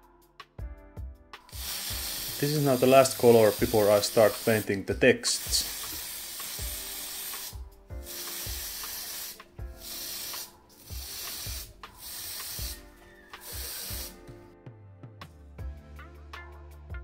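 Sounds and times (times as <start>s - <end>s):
aerosol spray can hissing: 1.5s - 14.5s.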